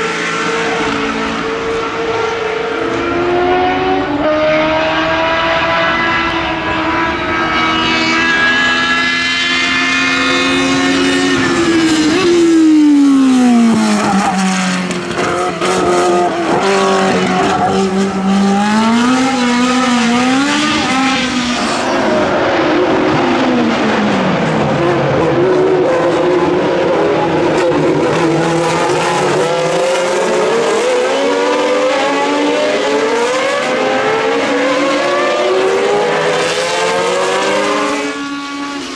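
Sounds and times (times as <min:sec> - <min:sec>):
race car engines at high revs: 0:00.0 - 0:38.9.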